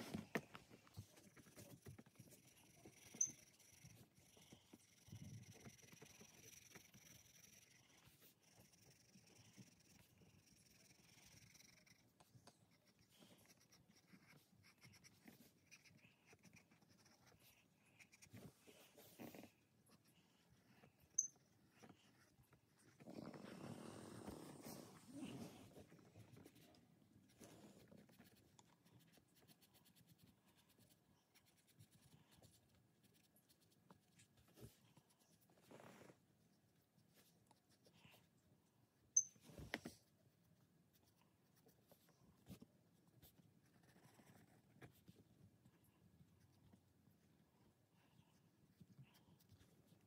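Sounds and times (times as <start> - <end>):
pencil scratching on paper: 0.0 - 20.1, 20.7 - 36.2, 40.9 - 45.2.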